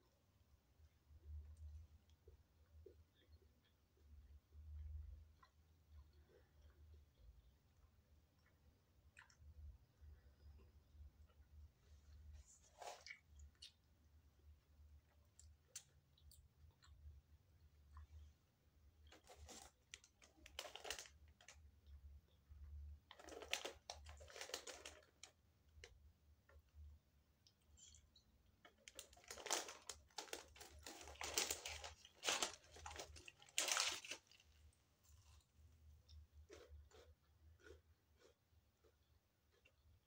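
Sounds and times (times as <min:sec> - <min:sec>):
paper bag rustling: 0:29.0 - 0:34.4.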